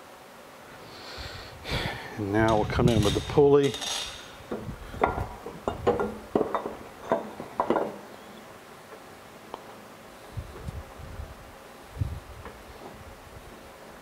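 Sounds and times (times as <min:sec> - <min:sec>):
metal pulley clinking and knocking: 0:02.5 - 0:04.3.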